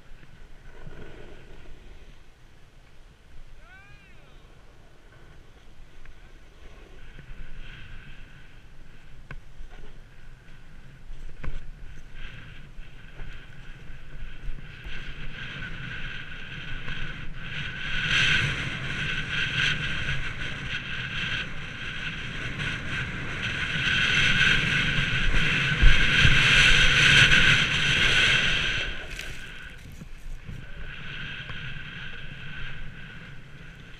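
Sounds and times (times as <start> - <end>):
snowboard scraping on snow: 0.3 - 2.3, 5.0 - 20.7, 22.2 - 33.9
wind on microphone: 3.6 - 33.9.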